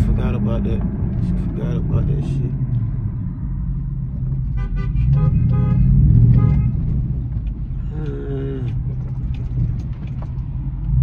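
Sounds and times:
road and engine rumble: 0.0s - 11.0s
man making brief vocal sounds: 7.8s - 8.8s.

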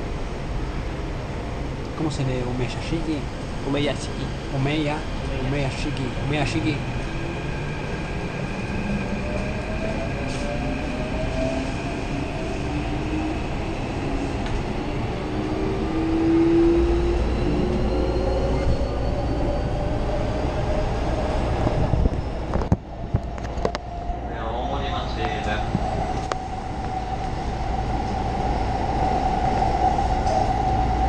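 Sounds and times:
train wheels on rails: 5.6s - 19.2s.

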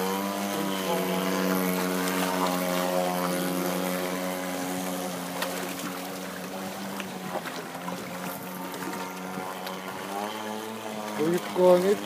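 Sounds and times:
model boat gas engine running: 0.0s - 12.0s.

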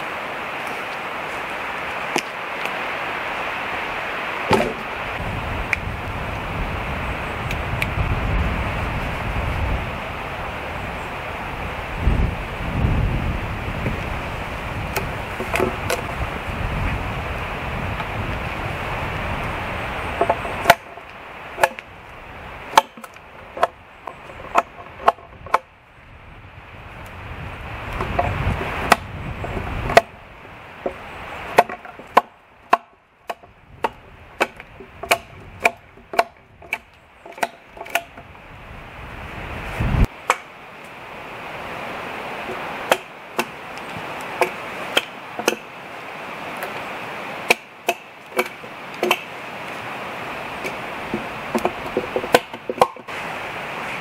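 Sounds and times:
hatchet chopping wood: 4.5s - 4.9s, 14.9s - 16.2s, 20.2s - 21.9s, 22.7s - 25.7s, 28.0s - 30.2s, 31.6s - 38.2s, 40.3s - 40.5s, 42.5s - 45.8s, 47.4s - 49.3s, 50.6s - 53.1s.

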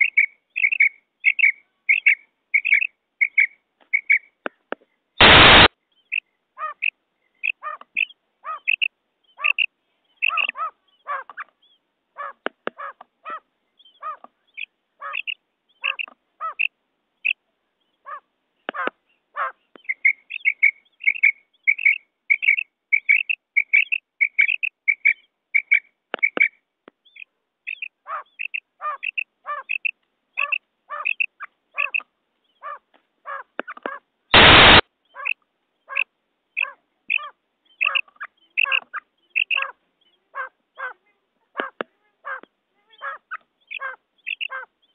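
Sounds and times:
quail chirping calls: 0.0s - 4.6s, 5.2s - 44.9s
sharp clicks: 33.6s - 34.8s.

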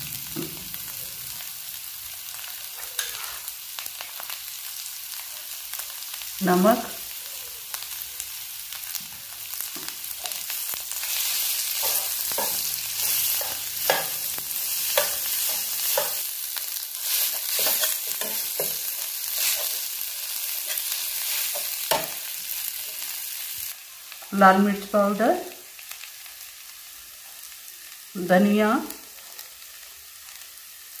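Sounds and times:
potatoes sizzling in oil: 0.0s - 31.0s
spatula scraping a pan: 2.8s - 3.5s, 10.3s - 16.3s, 16.9s - 23.1s.

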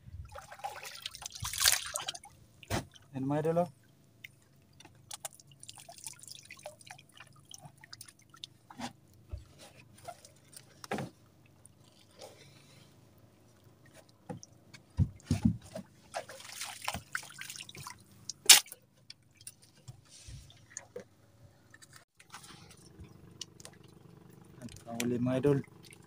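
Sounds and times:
water dripping and trickling: 0.2s - 3.1s, 3.7s - 9.2s, 16.1s - 18.4s, 22.7s - 26.0s
water splashing: 0.2s - 3.2s, 3.8s - 8.7s, 15.2s - 18.8s.

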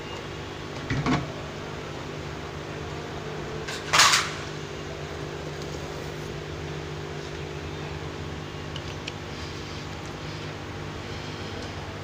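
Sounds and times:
fan hum: 0.0s - 12.0s
loud handling noise: 3.7s - 4.6s.

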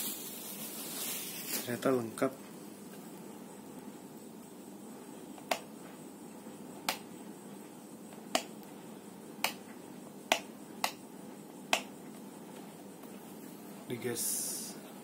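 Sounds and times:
steady background noise: 0.0s - 15.0s
sharp short clicks: 10.3s - 11.0s.

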